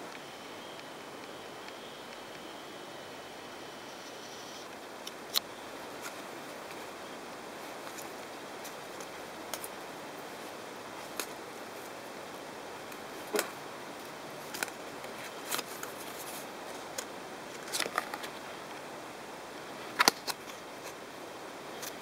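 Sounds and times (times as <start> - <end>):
steady hiss: 0.0 - 22.0
paper crackling and clicking: 14.5 - 18.4.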